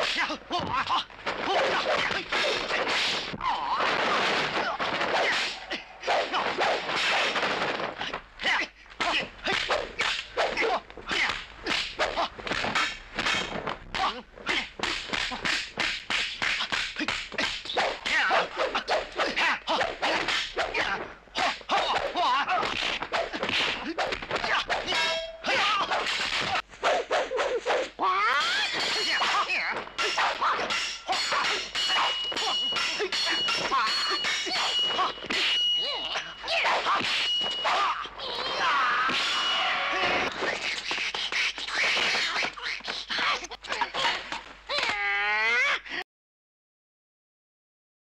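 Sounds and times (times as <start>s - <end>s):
sharp whacks of blows: 1.2s - 8.2s, 9.0s - 27.9s
staffs swishing: 9.4s - 13.7s, 14.8s - 27.9s, 28.5s - 37.8s.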